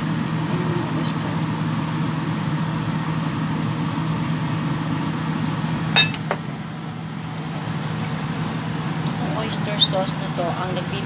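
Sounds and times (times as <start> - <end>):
kitchenware clinking: 6.0 - 6.4.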